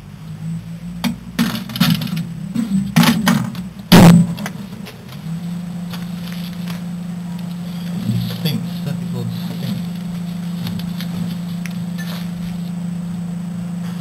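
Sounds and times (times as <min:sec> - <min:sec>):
microwave oven humming: 0:00.0 - 0:14.0
clattering and knocks: 0:01.0 - 0:05.2.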